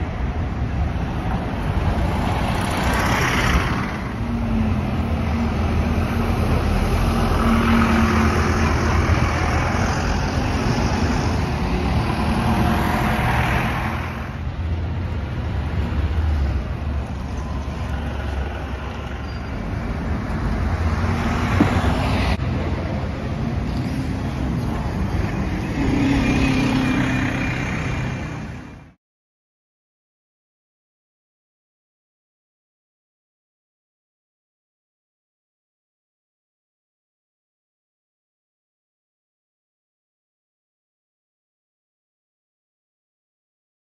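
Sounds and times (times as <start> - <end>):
diesel buses moving: 0.0 - 29.0
traffic noise: 0.0 - 29.0.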